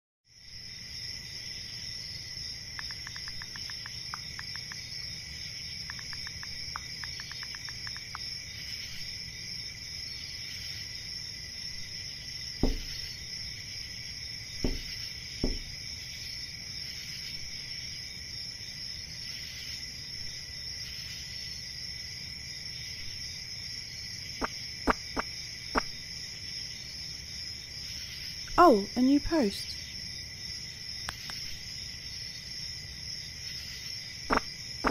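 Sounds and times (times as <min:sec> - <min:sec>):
crickets chirping: 0:00.3 - 0:34.9
quick light ticks: 0:02.8 - 0:04.8, 0:05.8 - 0:08.3
moth knocking on window glass: 0:12.6 - 0:13.2, 0:14.6 - 0:15.8.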